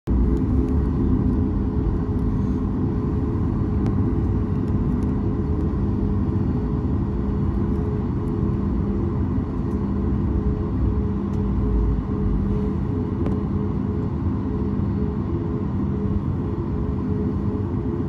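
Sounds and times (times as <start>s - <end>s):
jet engines rumbling in cabin: 0.1s - 18.0s
steady hum tones: 0.1s - 18.0s.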